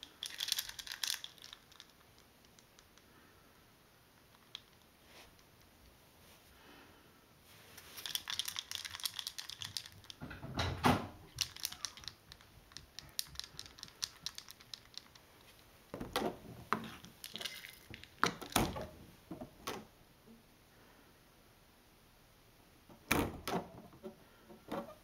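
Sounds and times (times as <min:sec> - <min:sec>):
kibble rattling in a dish: 0:00.0 - 0:02.9, 0:07.9 - 0:10.2, 0:11.3 - 0:15.5, 0:16.7 - 0:18.8.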